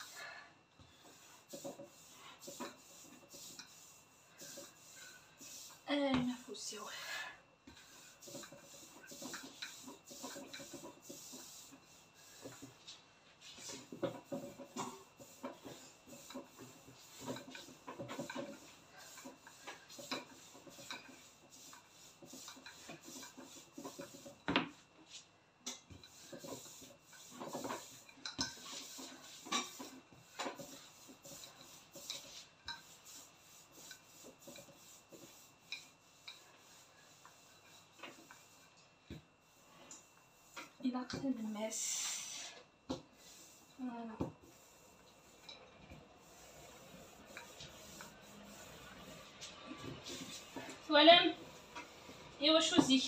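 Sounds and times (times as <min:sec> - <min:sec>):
hands rubbing grainy dough: 0:26.0 - 0:38.8, 0:43.1 - 0:45.5, 0:46.2 - 0:50.6.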